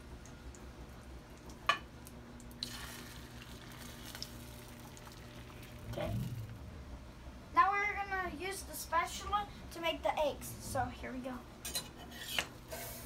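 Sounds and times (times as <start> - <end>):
eggs sizzling in a frying pan: 0.0 - 5.9
low steady hum: 0.0 - 13.0.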